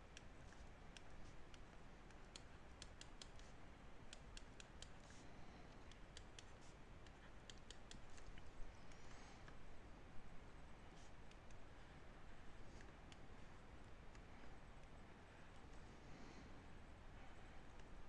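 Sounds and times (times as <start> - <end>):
stylus tapping tablet screen: 0.1 - 5.2, 5.8 - 9.6.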